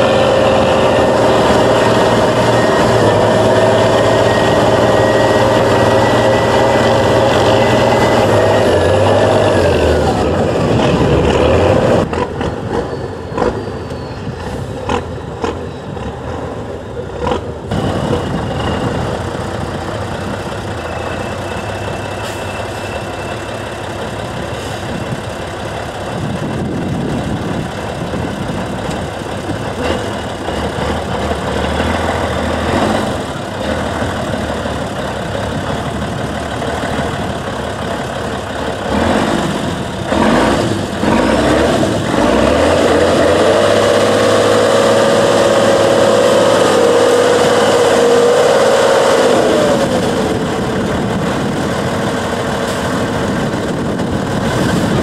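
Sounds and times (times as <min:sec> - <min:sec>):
truck engine running under load: 0:00.0 - 0:55.0.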